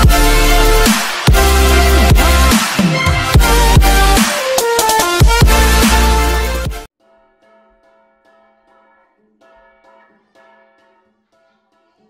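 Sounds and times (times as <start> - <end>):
electronic music with heavy bass: 0.0 - 6.9.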